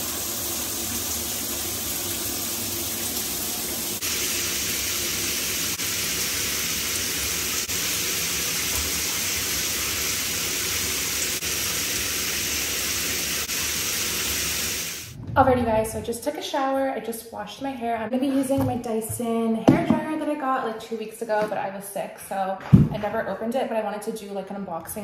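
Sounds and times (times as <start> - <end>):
shower water spraying: 0.0 - 15.2.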